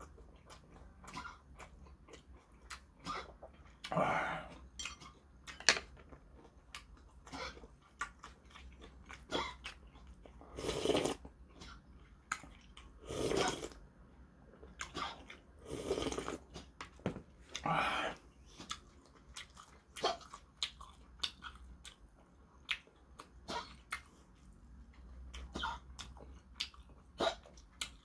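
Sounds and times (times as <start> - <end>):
person chewing: 0.0 - 13.8, 14.5 - 16.8, 17.4 - 28.0
slurping soup: 10.4 - 11.2, 13.0 - 13.8, 15.0 - 16.7.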